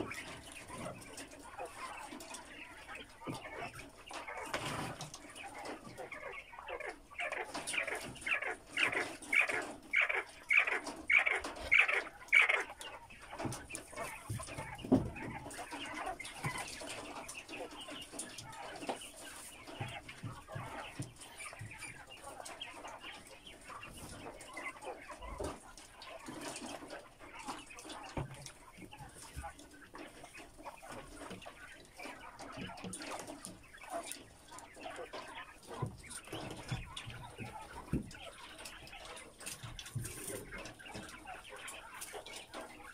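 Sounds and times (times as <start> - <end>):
birds rustling: 0.0 - 42.9
quail chirping: 0.0 - 42.9.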